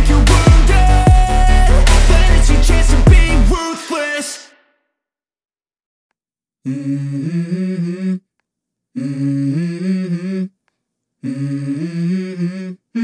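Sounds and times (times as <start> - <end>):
person humming: 6.6 - 8.3, 9.0 - 10.6, 11.2 - 13.0.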